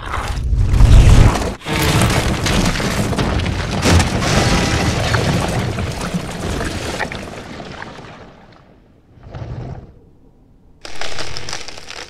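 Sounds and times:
rock chunks breaking apart: 1.6 - 8.5.

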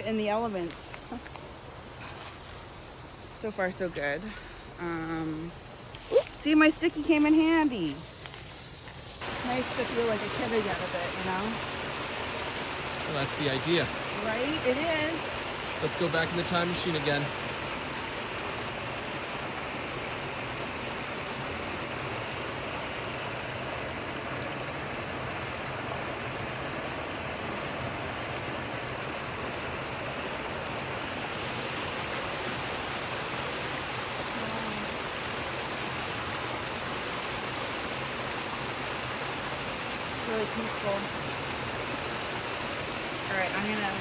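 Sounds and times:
water rushing down rocks: 9.2 - 44.0.

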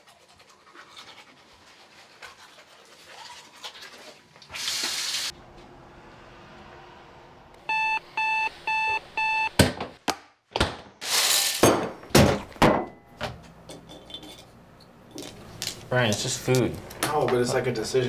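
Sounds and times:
alarm clock beeping: 7.7 - 9.5.

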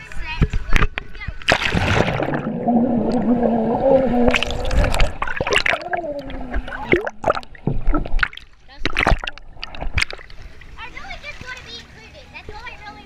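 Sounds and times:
muffled splashes: 0.0 - 12.8
bubbles gurgling underwater: 1.5 - 10.4
muffled voice underwater: 2.4 - 7.2.

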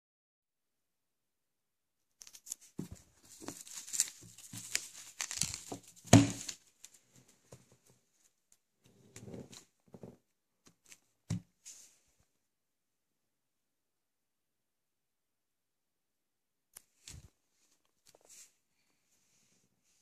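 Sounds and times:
paper crinkling and tearing: 2.2 - 7.0.

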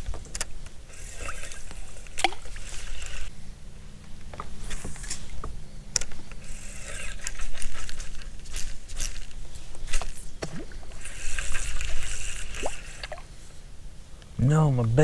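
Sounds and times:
spinning reel being worked: 0.9 - 3.3, 6.4 - 9.3.

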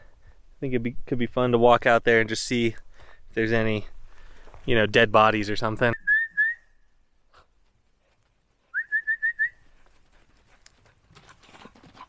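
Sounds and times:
faint footsteps: 3.9 - 4.9, 7.4 - 12.0
person whistling rising notes: 6.0 - 6.7, 8.7 - 9.6.

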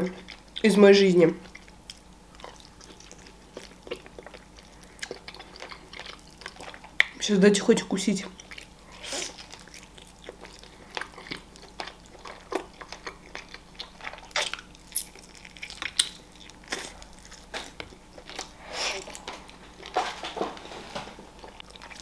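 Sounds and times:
person chewing chicken: 0.0 - 0.7, 1.4 - 7.2, 8.2 - 20.0, 21.3 - 22.0.

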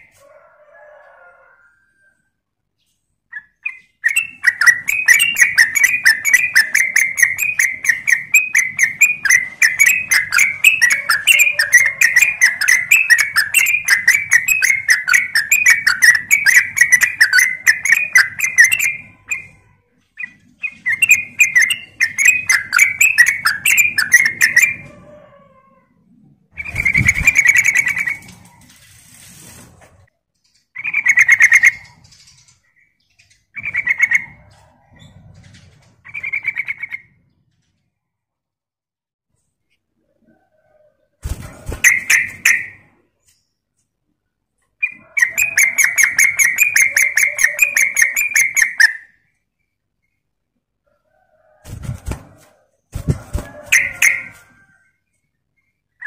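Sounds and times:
bird singing chattering notes: 3.3 - 19.6, 20.2 - 24.8, 44.8 - 49.0.

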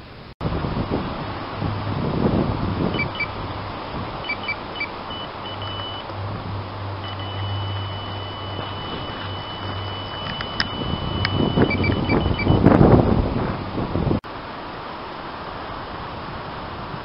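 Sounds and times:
electronic bite alarm beeping: 2.9 - 3.4, 4.2 - 6.1, 7.0 - 12.7.

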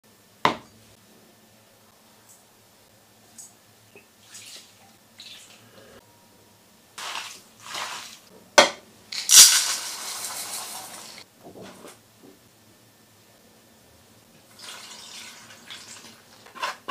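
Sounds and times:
seasoning sprinkling: 7.0 - 8.3, 9.1 - 11.2
starch pouring into steel bowl: 7.0 - 8.3, 9.2 - 11.2.

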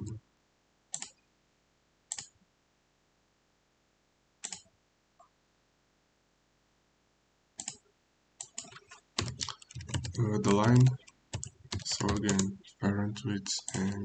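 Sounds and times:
keyboard and mouse clicks: 0.9 - 1.2, 2.1 - 2.4, 4.4 - 4.7, 7.6 - 7.8, 8.4 - 14.0.

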